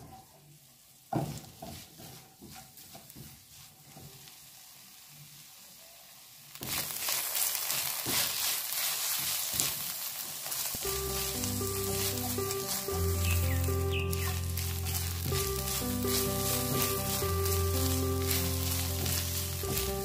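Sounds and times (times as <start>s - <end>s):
leaves sizzling in a frying pan: 0.0s - 20.0s
spatula scraping a pan: 1.2s - 4.3s, 10.8s - 20.0s
music: 10.8s - 20.0s.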